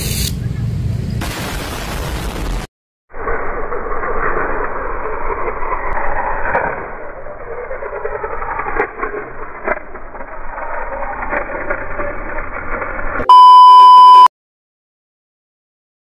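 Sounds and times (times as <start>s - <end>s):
test-pattern beep: 13.2s - 14.3s.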